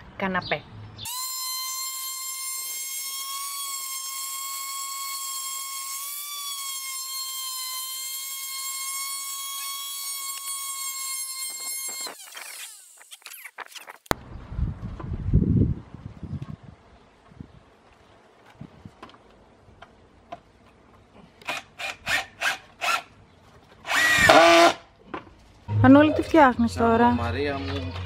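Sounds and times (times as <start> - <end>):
orbital sander whining: 1.1 - 13.6
low rumble: 25.7 - 27.1.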